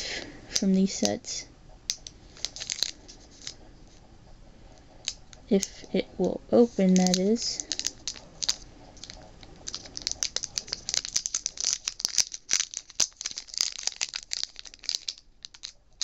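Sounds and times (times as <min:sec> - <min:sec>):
foil wrapper crinkling: 0:02.3 - 0:03.6, 0:06.8 - 0:16.0.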